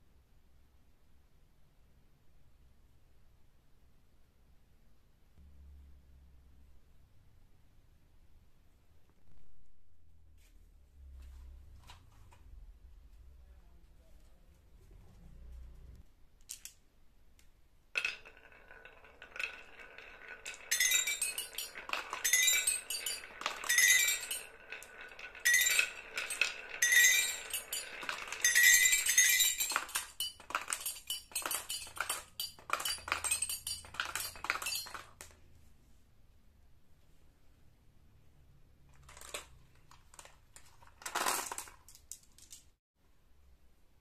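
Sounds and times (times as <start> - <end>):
marbles clicking together: 18.0 - 35.3
marbles rolling on wooden track: 18.0 - 35.4, 38.9 - 42.7
toy xylophone ringing notes: 20.7 - 24.4, 25.4 - 34.9.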